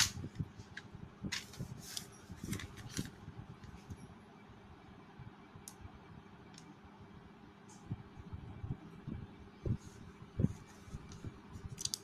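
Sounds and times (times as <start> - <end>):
paper pages rustling: 0.0 - 3.9, 10.4 - 12.0.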